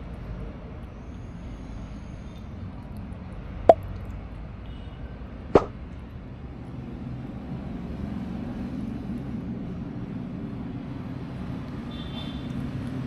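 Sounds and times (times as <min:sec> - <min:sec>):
sharp pop sound effects: 0:05.5 - 0:05.8.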